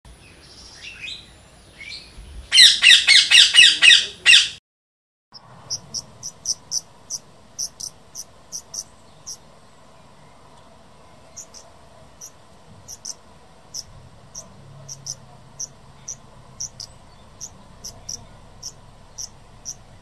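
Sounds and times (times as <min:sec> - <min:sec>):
parakeets squawking: 0:02.5 - 0:04.6, 0:05.6 - 0:09.4, 0:12.9 - 0:19.8
faint steady hum: 0:05.4 - 0:20.0.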